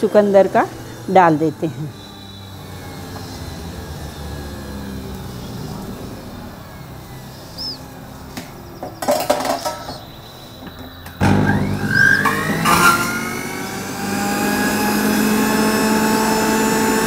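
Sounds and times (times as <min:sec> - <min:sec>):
juicer motor whining: 0:00.0 - 0:17.0
clinks and knocks of handling: 0:08.8 - 0:10.9.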